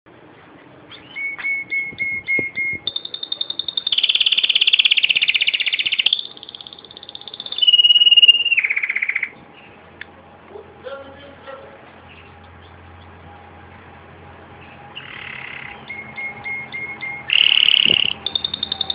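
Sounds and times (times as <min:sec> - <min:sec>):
canary singing trills: 0:00.6 - 0:09.8, 0:14.5 - 0:18.9.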